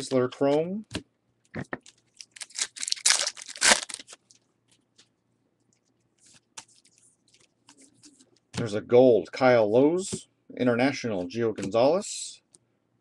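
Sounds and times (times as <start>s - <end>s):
wrapper clicks: 1.8s - 4.4s
wrapper tearing and crackling: 1.9s - 4.4s.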